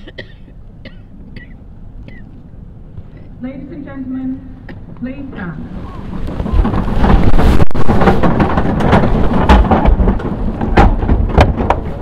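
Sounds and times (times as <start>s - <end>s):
wind rumble on microphone: 4.8s - 12.0s
knocks of seats and feet: 6.3s - 12.0s.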